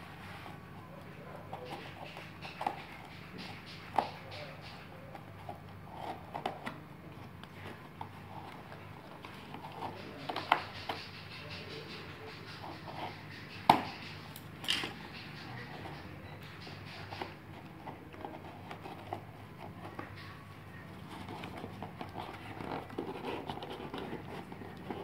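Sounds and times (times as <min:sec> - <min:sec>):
cardboard box rustling and scraping: 0:17.3 - 0:25.0.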